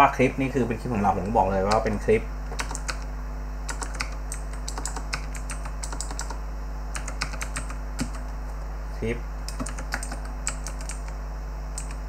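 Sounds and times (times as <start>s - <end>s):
low electrical hum: 0.0s - 12.0s
keyboard key clicks: 9.5s - 11.2s.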